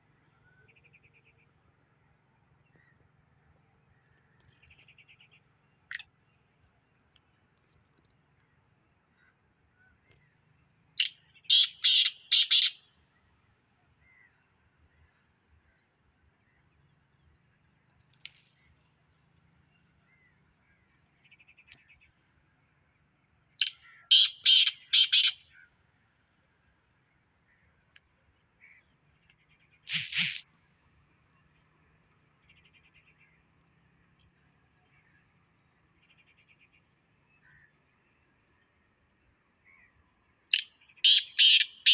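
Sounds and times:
bird harsh rasping call: 11.0s - 12.8s, 23.6s - 25.4s, 29.9s - 30.4s, 40.6s - 41.9s.

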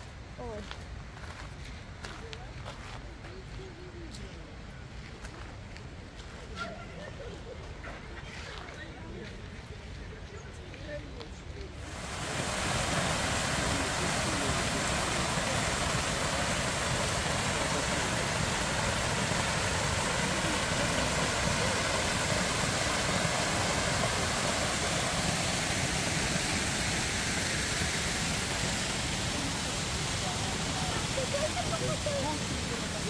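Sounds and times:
fountain water rushing: 11.7s - 33.0s.

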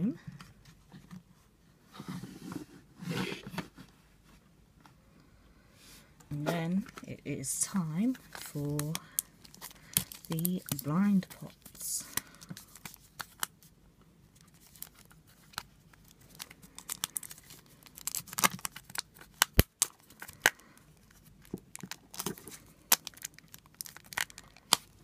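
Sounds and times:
plastic wrap crinkling: 8.0s - 13.7s, 14.3s - 25.0s.

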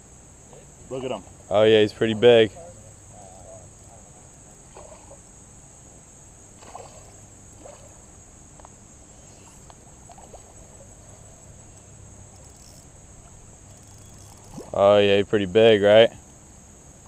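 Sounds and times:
insects buzzing: 0.0s - 17.0s
fish splashing at surface: 6.6s - 8.0s.

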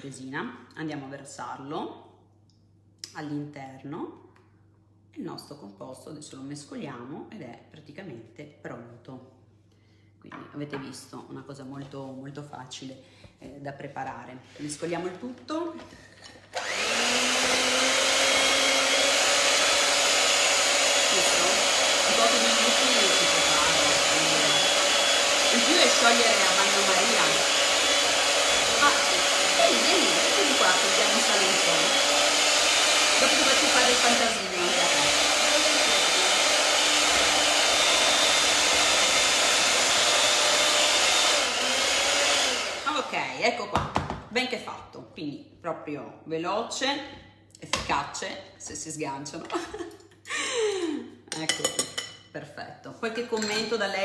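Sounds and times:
electric hand mixer whirring: 16.3s - 43.4s.

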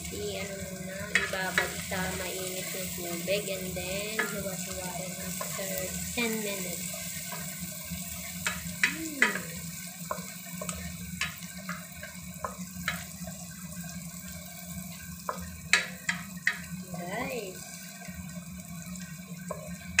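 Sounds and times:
food sizzling in hot oil: 0.0s - 20.0s
wooden spatula knocking pan: 15.2s - 16.7s.

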